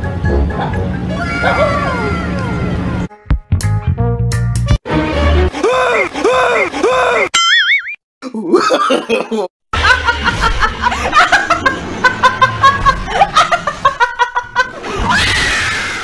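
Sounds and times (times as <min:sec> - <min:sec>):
woman laughing loudly: 0:01.2 - 0:02.3, 0:08.5 - 0:15.0
speech: 0:05.6 - 0:07.3.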